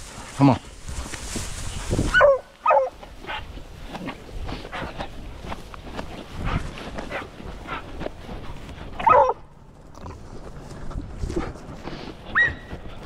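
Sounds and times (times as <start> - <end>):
footsteps in dry grass: 0.0 - 13.0
dog yelping: 2.1 - 3.0, 9.0 - 9.4, 12.3 - 12.7.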